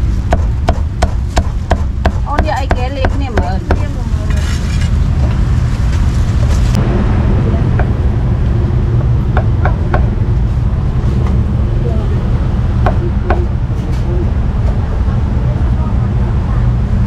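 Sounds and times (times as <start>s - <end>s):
low street traffic rumble: 0.0s - 17.0s.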